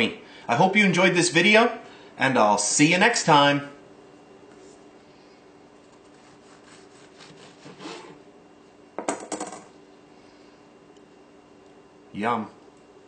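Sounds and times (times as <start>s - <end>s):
knife scraping through pastry: 5.9s - 8.2s.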